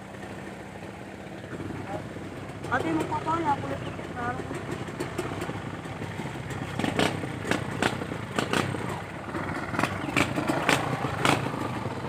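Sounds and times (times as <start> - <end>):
vehicle engine running low: 0.0 - 12.0
sharp knocks and rattles: 4.4 - 11.7.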